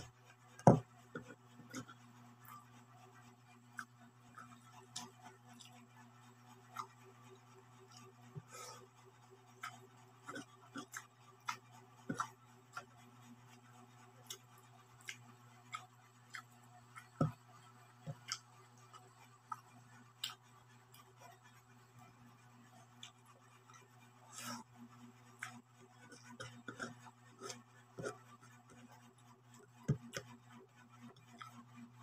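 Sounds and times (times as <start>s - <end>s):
steady low hum: 0.0s - 32.0s
person chewing: 3.8s - 5.7s, 9.6s - 12.9s, 15.0s - 17.4s, 18.1s - 18.9s.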